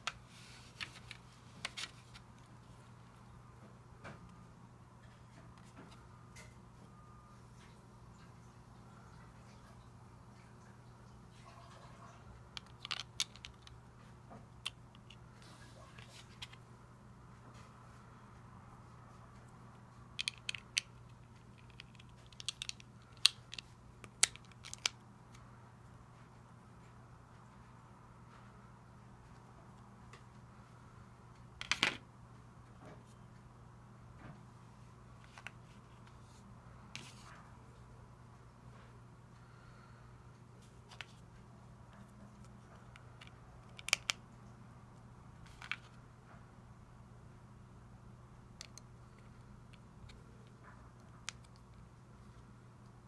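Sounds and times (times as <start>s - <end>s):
plastic bricks clicking together: 12.6s - 13.7s, 20.2s - 21.0s, 21.6s - 25.0s, 43.2s - 44.2s.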